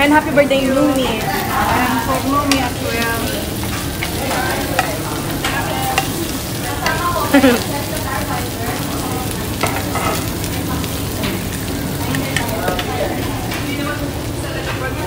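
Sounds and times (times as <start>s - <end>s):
dishes and cutlery clinking: 1.2s - 7.7s, 9.5s - 13.7s.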